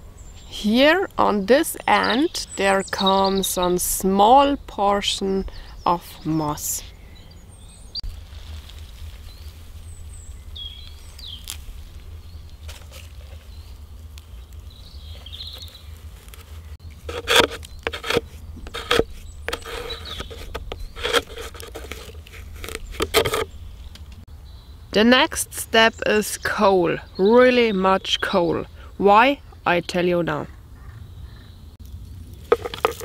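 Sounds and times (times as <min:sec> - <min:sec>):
hands packing moss into plastic: 0:10.8 - 0:24.1, 0:32.4 - 0:33.0.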